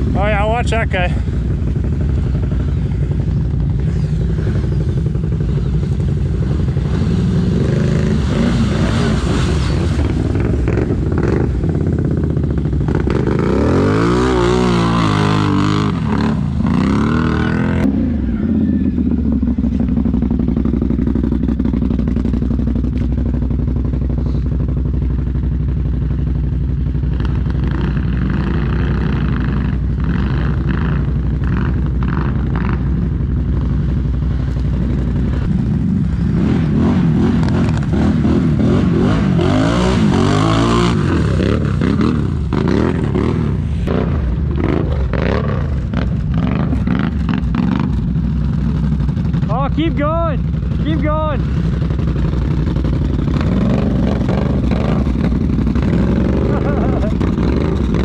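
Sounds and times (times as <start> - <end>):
atv engines revving: 0.0 - 58.0.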